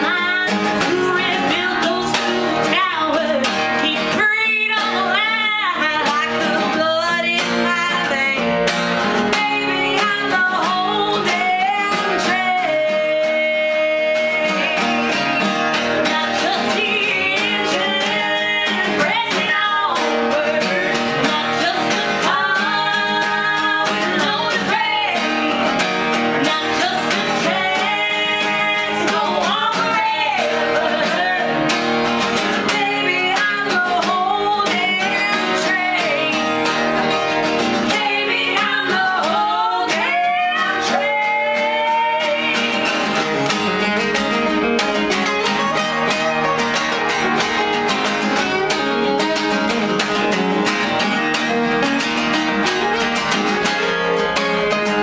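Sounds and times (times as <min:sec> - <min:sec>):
woman singing harmony: 0:00.0 - 0:08.6, 0:09.2 - 0:15.3, 0:16.0 - 0:31.7, 0:32.4 - 0:36.7, 0:37.8 - 0:43.2
acoustic guitars strummed: 0:00.0 - 0:55.0
woman singing lead: 0:00.0 - 0:55.0.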